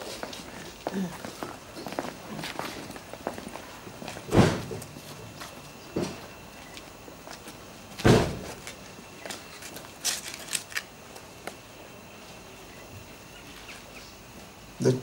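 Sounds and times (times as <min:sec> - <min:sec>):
shoes scuffing on brick paving: 0:00.0 - 0:10.6
dull thump: 0:04.3 - 0:04.8, 0:08.0 - 0:08.5.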